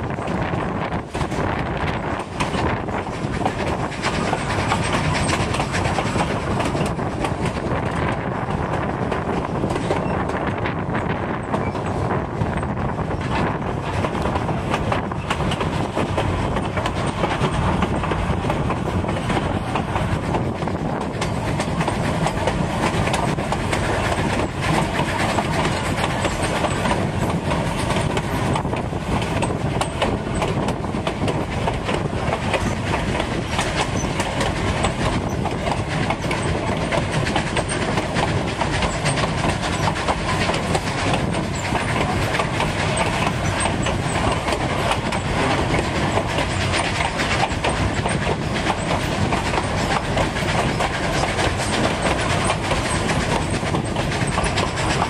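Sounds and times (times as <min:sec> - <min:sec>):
train cars rumbling and rattling: 0:00.0 - 0:55.0.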